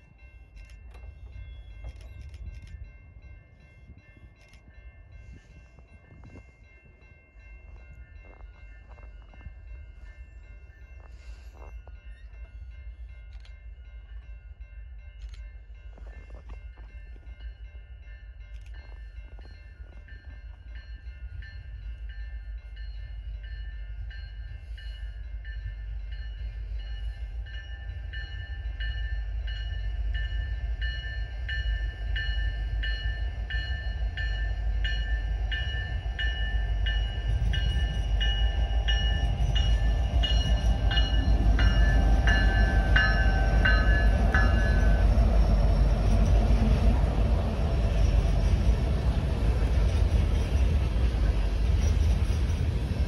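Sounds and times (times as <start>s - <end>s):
diesel locomotives rumbling: 0.0s - 53.0s.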